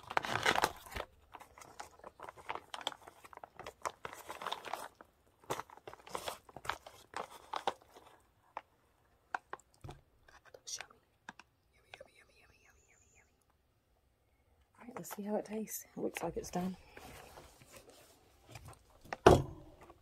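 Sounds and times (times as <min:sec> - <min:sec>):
foil pouch crinkling: 0:00.0 - 0:08.7.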